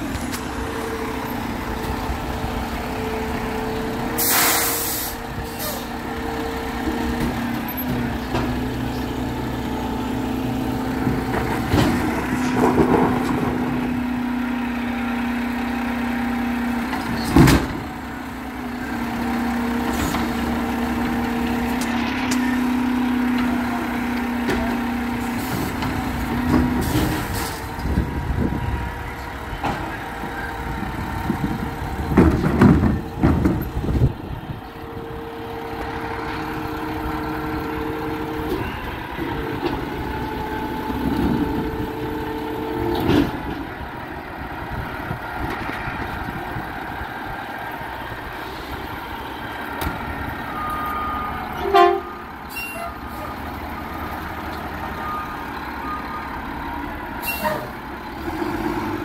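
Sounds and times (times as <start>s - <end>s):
garbage truck engine running: 0.0s - 59.0s
air brake hiss: 4.2s - 5.9s.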